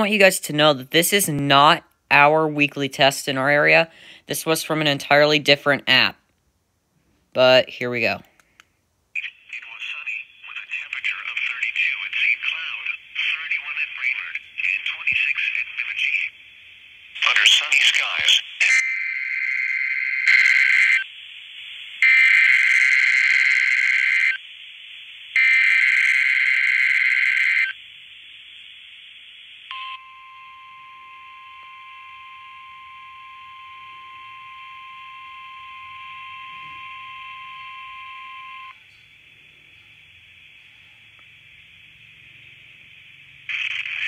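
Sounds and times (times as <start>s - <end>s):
radio hiss: 9.2s - 44.0s.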